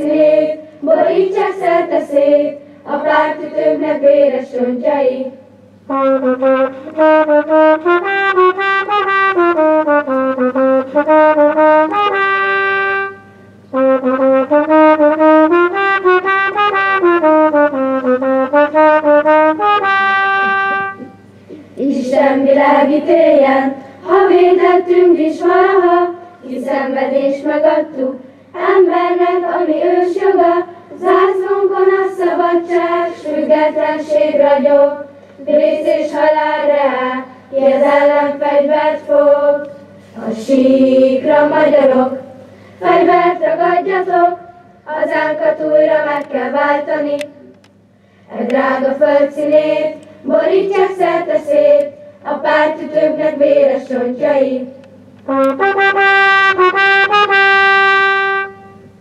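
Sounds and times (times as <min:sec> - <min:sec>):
children's choir singing: 0:00.0 - 0:05.4, 0:21.8 - 0:47.5, 0:48.3 - 0:55.7
brass instrumental tune: 0:05.8 - 0:21.3, 0:55.2 - 0:59.0.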